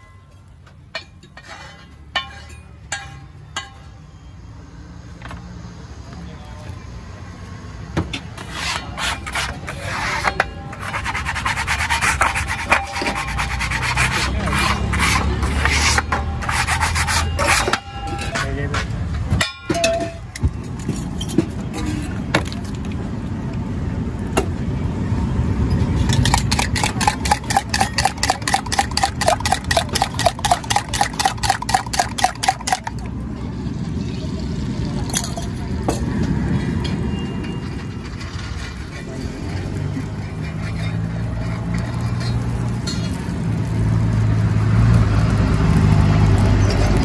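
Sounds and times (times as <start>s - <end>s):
metal spatula scraping on griddle: 1.0s - 3.2s, 8.2s - 18.9s, 25.8s - 33.0s, 38.0s - 43.7s.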